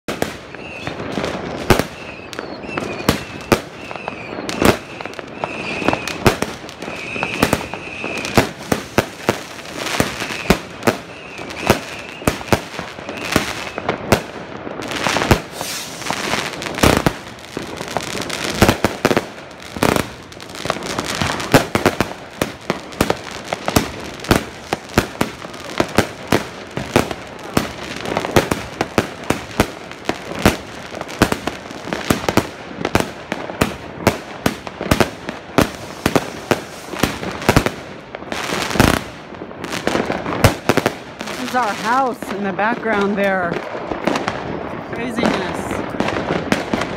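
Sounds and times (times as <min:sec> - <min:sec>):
fireworks bangs and crackles: 0:00.1 - 0:46.9
high firework whistle: 0:00.4 - 0:08.8, 0:10.0 - 0:14.0, 0:15.3 - 0:17.1.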